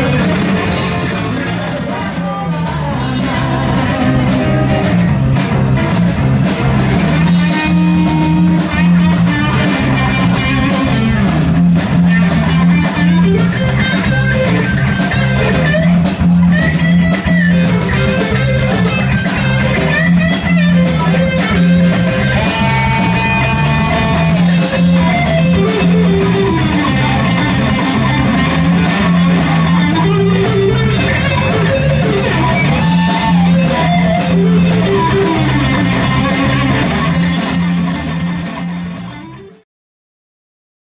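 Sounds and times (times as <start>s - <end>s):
blues band playing: 0.0s - 39.6s
electric guitar bending notes: 0.0s - 39.6s.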